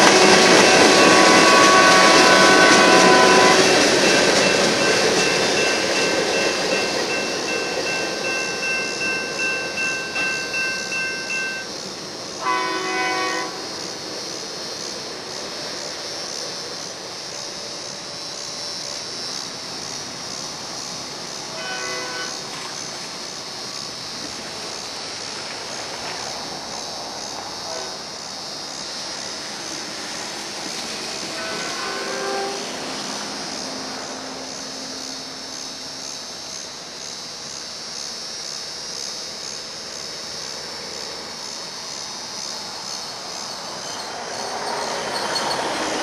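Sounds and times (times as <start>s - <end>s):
train horn blast: 0.0s - 4.6s, 12.4s - 13.8s, 21.5s - 22.6s, 27.6s - 28.1s, 31.2s - 33.1s
high squeal: 0.0s - 11.9s, 43.3s - 46.0s
train wheels clacking: 0.0s - 36.4s, 42.8s - 46.0s
steady hiss: 0.0s - 46.0s.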